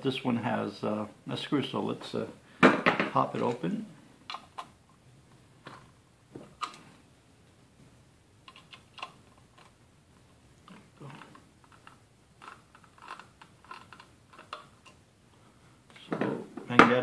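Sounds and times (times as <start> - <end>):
screwdriver clicking and scraping: 11.1 - 15.0.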